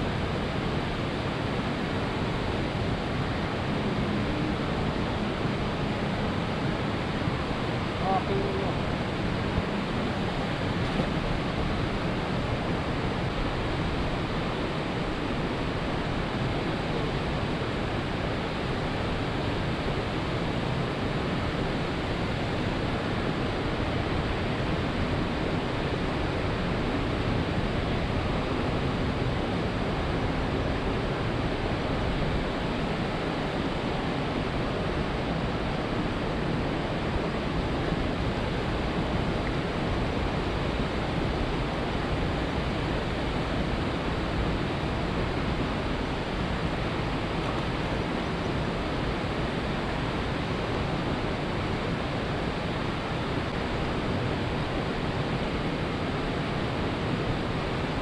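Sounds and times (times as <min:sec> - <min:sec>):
steady rushing outdoor noise: 0:00.0 - 0:58.0.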